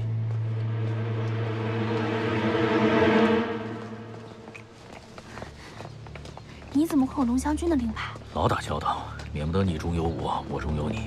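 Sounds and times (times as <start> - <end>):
footsteps of people walking: 0.0 - 2.0, 4.4 - 11.0.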